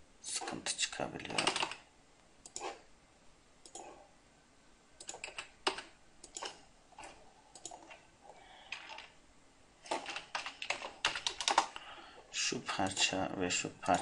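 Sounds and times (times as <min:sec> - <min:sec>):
mouse and keyboard clicking: 0:05.0 - 0:08.0.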